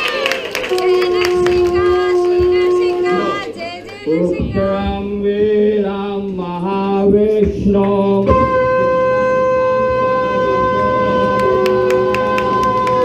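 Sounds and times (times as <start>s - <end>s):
conch shell blown: 0.7s - 3.4s, 8.3s - 13.0s.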